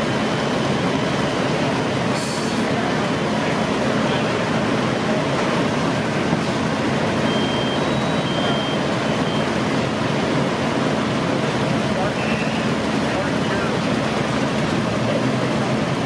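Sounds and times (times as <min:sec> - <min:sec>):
diesel engines rumbling: 0:00.0 - 0:16.0
short high beeps: 0:07.2 - 0:09.6.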